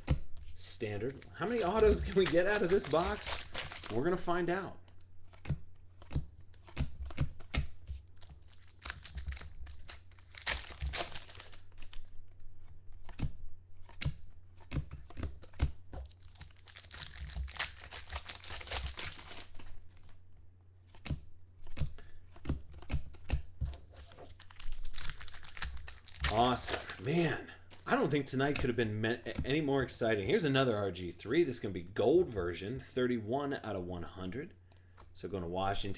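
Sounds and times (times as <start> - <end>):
cards clicking and sliding: 0.0 - 4.2, 4.9 - 20.2, 20.9 - 28.7
card wrappers tearing and crinkling: 0.6 - 4.6, 8.2 - 12.2, 16.0 - 20.2, 23.8 - 28.6.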